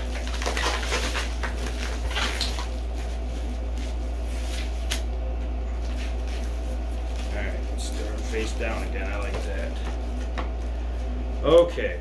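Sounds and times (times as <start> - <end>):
bubble wrap crinkling: 0.0 - 5.1
steady low hum: 0.0 - 12.0.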